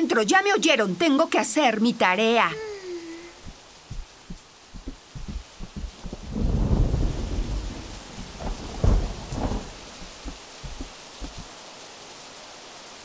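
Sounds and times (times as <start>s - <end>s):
heavy rain: 2.5s - 13.0s
rolling thunder: 3.9s - 11.5s.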